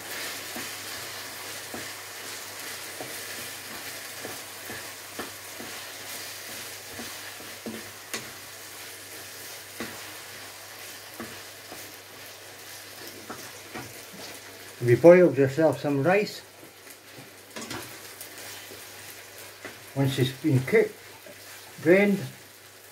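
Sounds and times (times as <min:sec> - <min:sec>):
meat sizzling in a frying pan: 0:00.0 - 0:22.9
spatula scraping and knocking pan: 0:00.5 - 0:08.4, 0:09.1 - 0:14.3.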